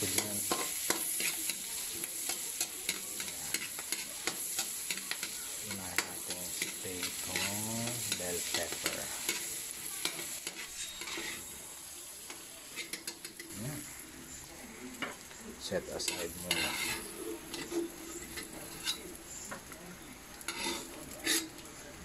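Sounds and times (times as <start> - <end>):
metal ladle scraping a pan: 0.0 - 11.6, 16.0 - 19.2, 20.5 - 21.6
tomatoes sizzling in butter: 0.0 - 22.0.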